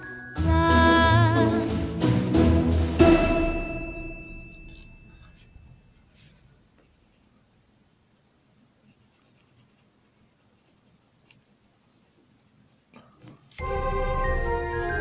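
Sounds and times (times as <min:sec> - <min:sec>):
background music: 0:00.0 - 0:04.6, 0:13.6 - 0:15.0
pencil scratching on paper: 0:06.2 - 0:07.3, 0:08.8 - 0:13.0.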